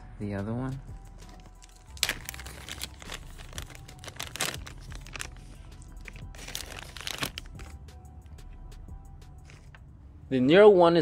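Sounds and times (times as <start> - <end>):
plastic bag crinkling: 1.2 - 7.7.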